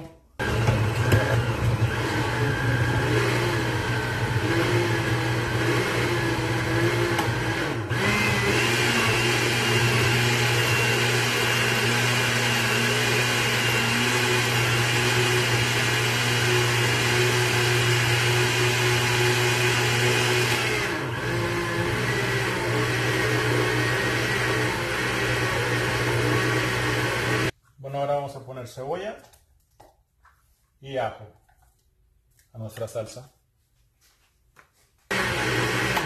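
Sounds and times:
blender motor running: 0.4s - 27.5s, 35.1s - 36.0s.

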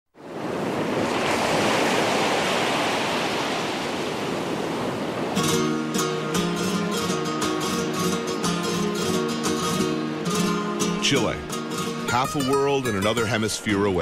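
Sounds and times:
water rushing: 0.2s - 14.0s
strummed acoustic guitar music: 5.3s - 14.0s.

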